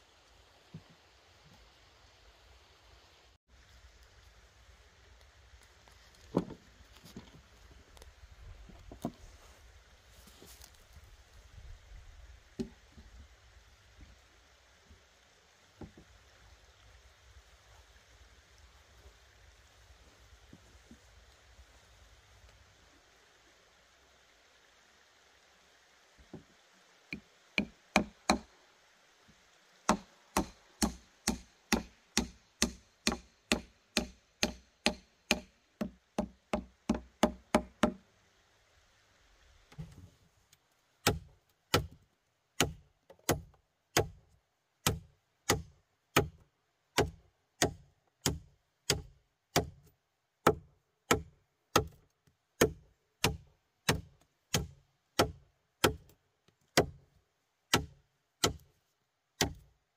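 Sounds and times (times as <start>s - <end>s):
tool striking wood: 27.1s - 28.5s, 29.9s - 38.0s.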